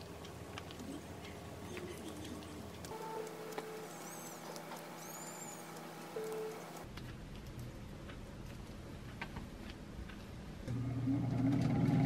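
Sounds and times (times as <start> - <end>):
air fryer fan humming: 2.4 - 6.9, 10.7 - 12.0.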